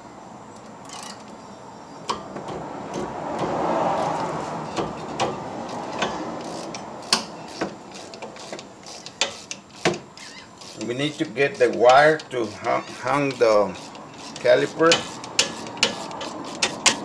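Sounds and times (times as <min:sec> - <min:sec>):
rushing noise: 0:02.6 - 0:07.5
wrench metal clicks: 0:05.9 - 0:17.0.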